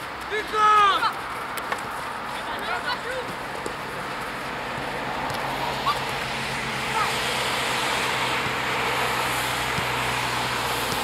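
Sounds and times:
outdoor rushing background: 0:00.0 - 0:11.0
distant shouts of players: 0:00.3 - 0:01.2.

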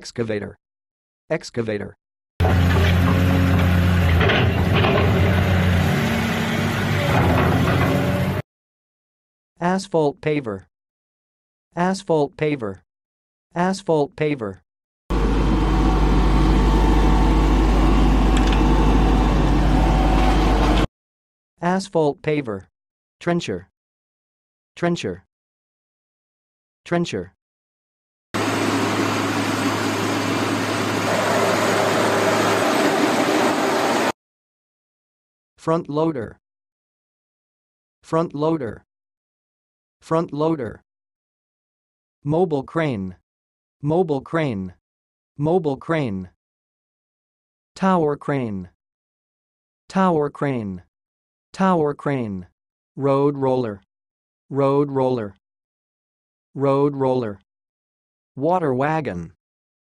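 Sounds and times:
heavy machine engine running: 0:02.4 - 0:08.4, 0:15.1 - 0:20.9, 0:28.4 - 0:34.1
low hum: 0:15.1 - 0:20.9.

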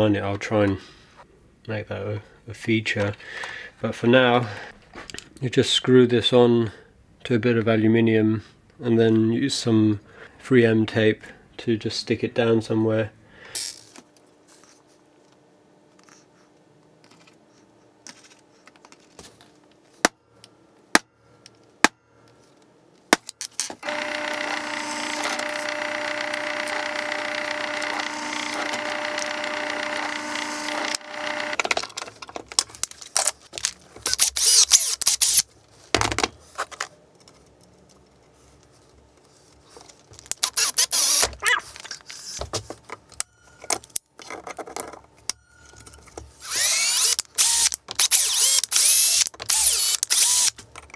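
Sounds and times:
scraping and handling noises: 0:17.0 - 0:20.0, 0:31.5 - 0:34.2, 0:35.5 - 0:40.8, 0:41.4 - 0:46.4
drill boring into metal: 0:23.8 - 0:31.6, 0:34.1 - 0:35.4, 0:40.5 - 0:41.2, 0:46.4 - 0:50.5
motor whine: 0:23.8 - 0:31.6, 0:46.4 - 0:50.5.

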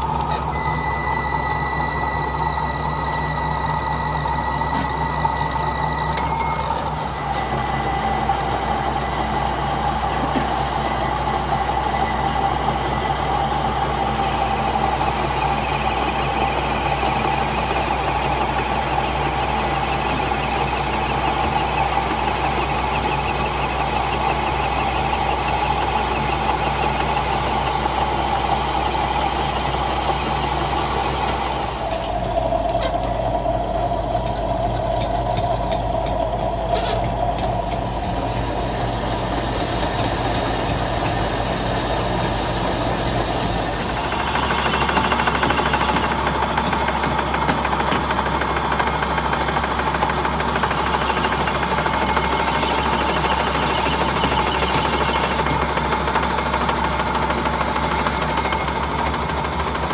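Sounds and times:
metal lathe whining and hissing: 0:00.0 - 0:59.9.

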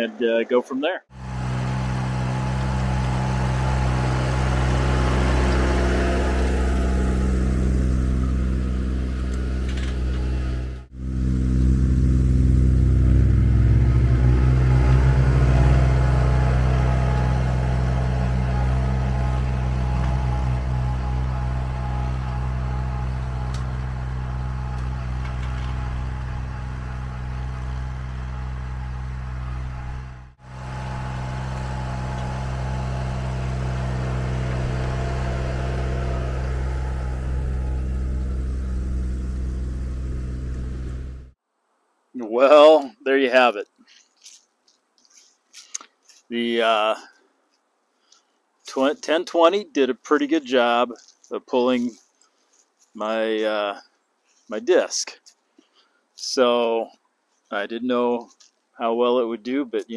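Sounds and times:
tractor diesel engine running: 0:01.1 - 0:41.4.

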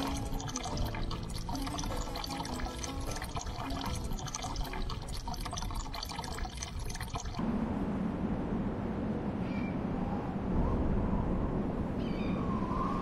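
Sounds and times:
low rushing water: 0:00.0 - 0:07.4
water running and splashing: 0:00.0 - 0:07.4.

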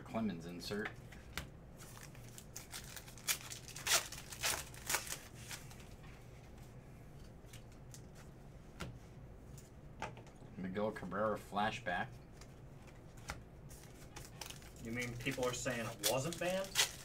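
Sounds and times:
trading cards rustling and flicking: 0:01.0 - 0:06.0, 0:12.3 - 0:17.0.

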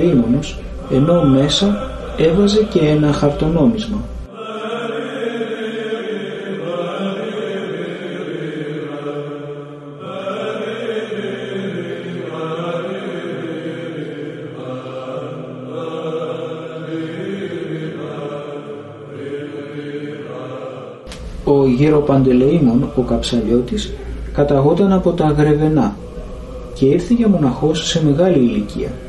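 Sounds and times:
low drone note: 0:00.0 - 0:04.3
chant singing: 0:00.0 - 0:29.0.

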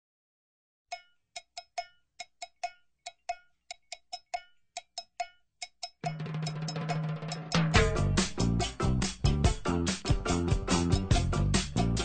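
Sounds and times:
cowbell strikes: 0:00.9 - 0:09.7.

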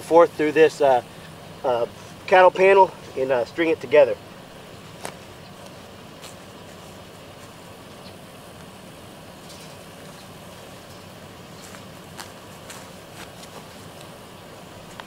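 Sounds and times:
truck engine idling: 0:00.0 - 0:15.0
footsteps in grass: 0:04.4 - 0:15.0.

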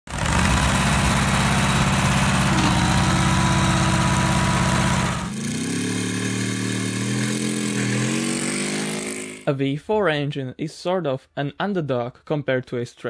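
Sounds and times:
log splitter engine running: 0:00.1 - 0:05.6
aircraft engine speeding up: 0:00.1 - 0:09.4.

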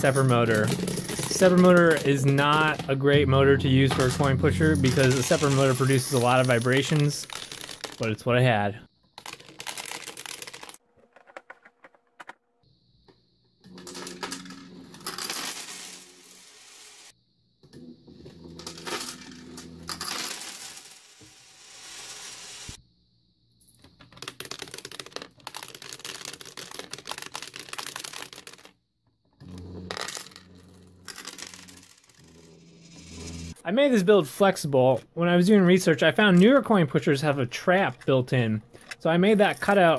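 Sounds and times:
coins clinking and sliding: 0:00.0 - 0:08.2, 0:09.2 - 0:12.4, 0:13.7 - 0:17.1, 0:18.3 - 0:22.8, 0:24.1 - 0:28.7, 0:29.4 - 0:33.6.

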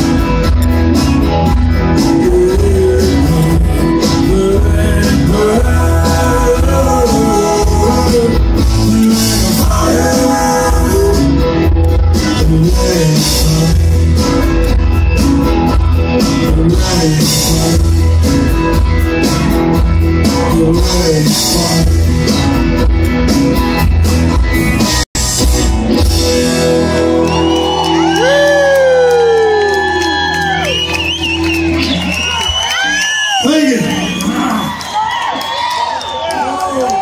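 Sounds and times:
live rock band playing: 0:00.0 - 0:37.0
lead vocal singing: 0:02.0 - 0:11.6, 0:12.3 - 0:14.2, 0:16.4 - 0:18.1
audience whooping: 0:26.5 - 0:37.0.

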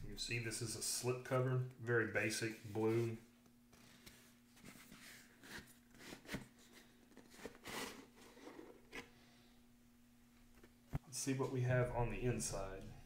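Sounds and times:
scrape: 0:03.8 - 0:09.1.

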